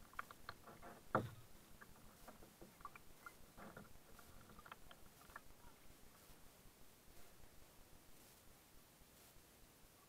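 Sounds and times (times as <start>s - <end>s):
paddle dipping into water: 0.1s - 6.4s.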